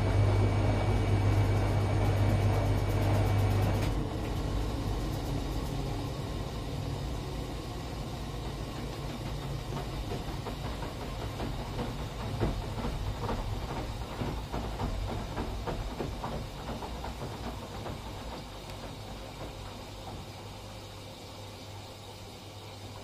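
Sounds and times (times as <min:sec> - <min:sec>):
washing machine motor hum: 0:00.0 - 0:23.0
drum knocking and swishing: 0:08.3 - 0:20.8.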